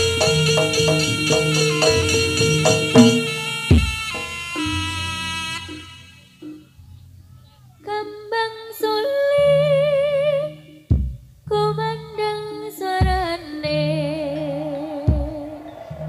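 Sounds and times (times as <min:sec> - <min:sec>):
sharp percussive hit: 0:00.0 - 0:04.6
woman singing with vibrato: 0:00.0 - 0:05.1, 0:07.8 - 0:10.9, 0:11.5 - 0:16.0
low held accompaniment notes: 0:00.0 - 0:16.0.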